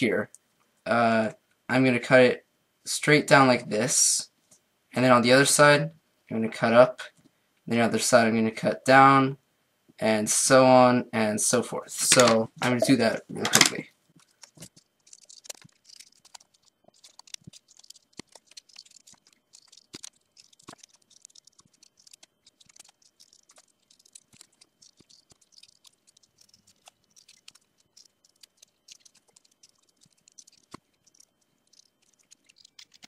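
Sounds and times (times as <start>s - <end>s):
scissors snipping paper: 14.2s - 33.0s.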